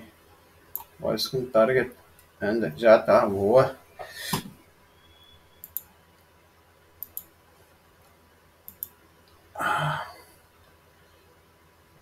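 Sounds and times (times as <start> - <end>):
computer mouse double-clicking: 8.7 - 8.9
breathy sigh: 9.6 - 10.4.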